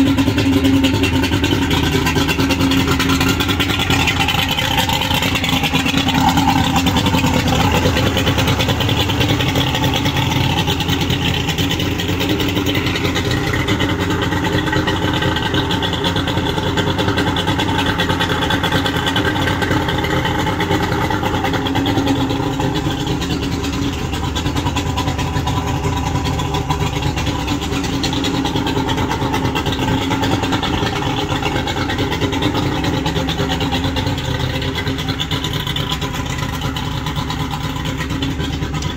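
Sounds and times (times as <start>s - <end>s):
outboard engine idling: 0.0s - 38.9s.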